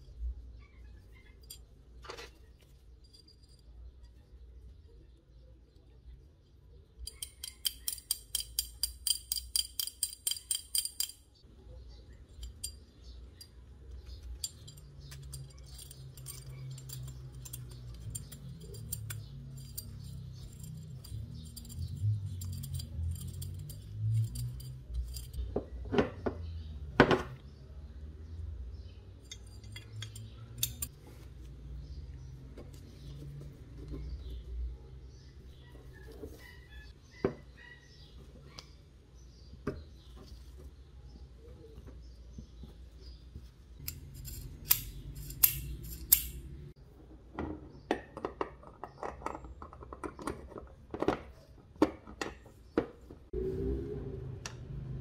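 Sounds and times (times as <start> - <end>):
small metal parts clicking: 1.2 - 4.2, 7.0 - 11.4, 12.3 - 25.5, 29.2 - 31.0, 43.8 - 46.7.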